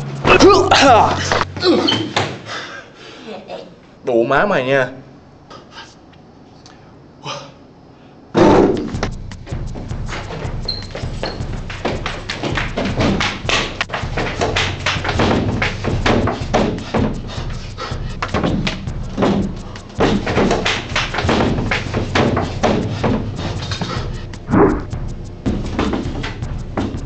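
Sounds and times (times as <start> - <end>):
punches thudding and slapping: 10.1 - 17.6, 18.2 - 23.3.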